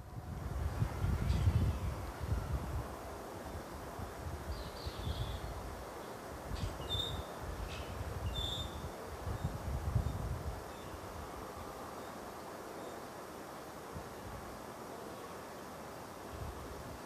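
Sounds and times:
wind on microphone: 0.0s - 11.4s.

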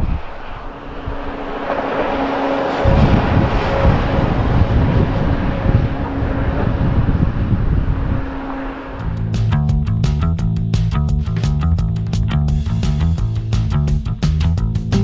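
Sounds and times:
jet engines rushing: 0.0s - 9.6s
low rumble: 0.0s - 15.0s.

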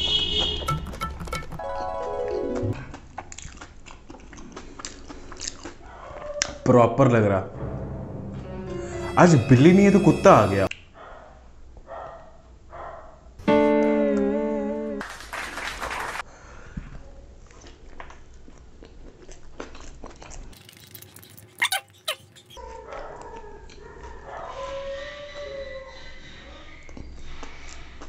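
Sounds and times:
dog howling: 21.6s - 26.9s.

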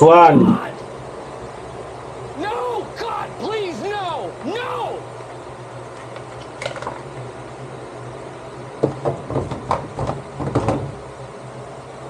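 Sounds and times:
hard plastic knocks and clatter: 8.8s - 11.0s.

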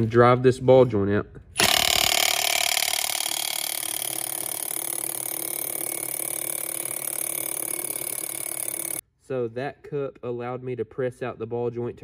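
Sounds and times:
impact gun rattling: 1.6s - 9.0s.

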